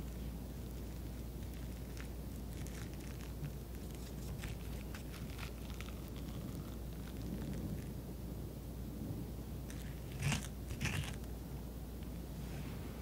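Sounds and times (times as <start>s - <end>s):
spoon scraping squash pulp: 0.0s - 7.6s, 9.7s - 11.3s
low steady hum: 0.0s - 13.0s.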